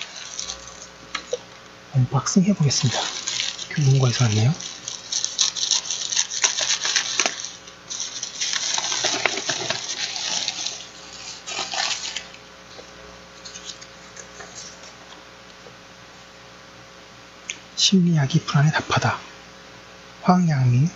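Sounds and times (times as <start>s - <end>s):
plastic mailer crinkling: 0.0s - 1.6s, 2.4s - 15.2s.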